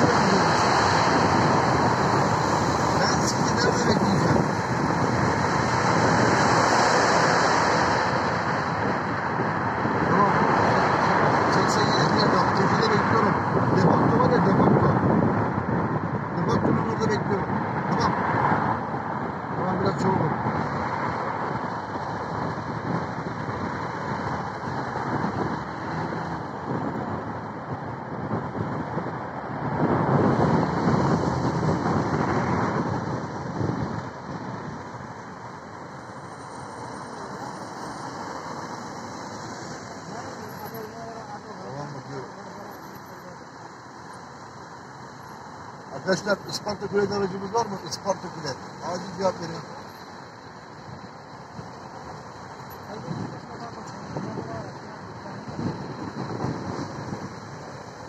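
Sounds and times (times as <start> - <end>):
wind buffeting microphone: 0.0 - 35.6, 52.8 - 58.0
road and wind noise: 0.0 - 58.0.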